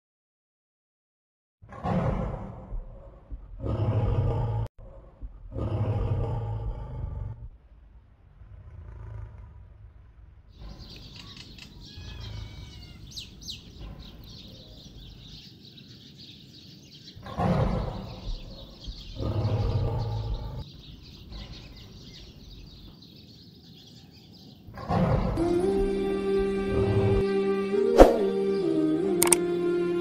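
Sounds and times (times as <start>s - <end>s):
deep dinosaur growls: 1.6s - 11.2s, 17.2s - 22.2s, 24.7s - 25.4s
birds chirping: 9.7s - 30.0s.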